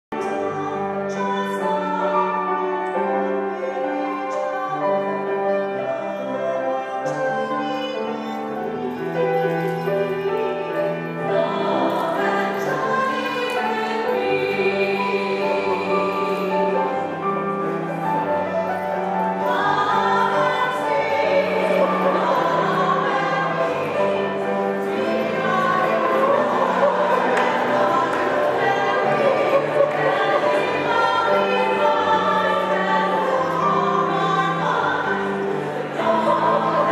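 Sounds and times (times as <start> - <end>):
choir singing held chords: 10.8 - 36.9.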